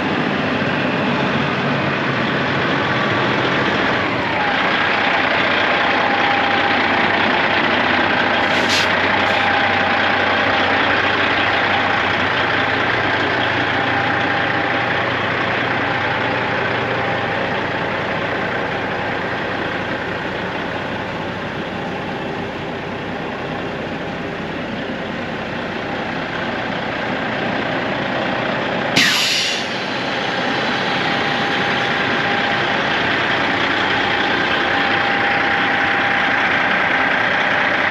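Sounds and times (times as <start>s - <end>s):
diesel truck engine idling: 0.0s - 37.9s
short air hiss: 8.4s - 9.4s, 29.0s - 30.1s
loud air brake release: 8.4s - 9.5s, 29.0s - 31.8s.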